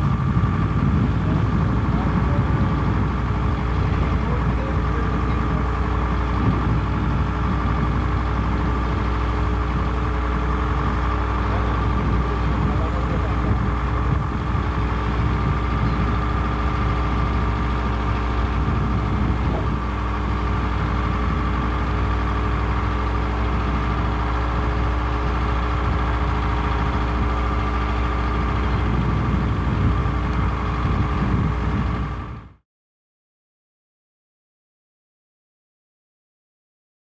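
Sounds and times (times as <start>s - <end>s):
engine idling: 0.0s - 32.6s.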